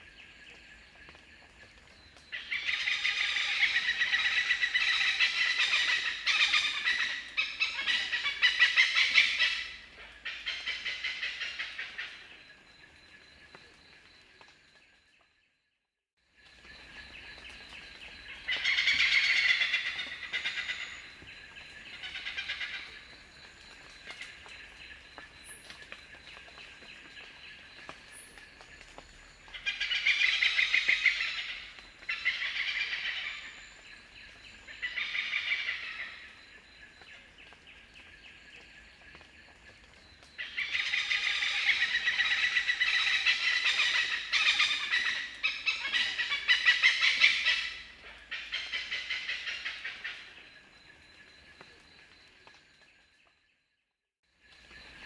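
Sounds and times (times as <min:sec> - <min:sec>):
hornbill cackling calls: 0:18.5 - 0:21.0, 0:40.4 - 0:50.4.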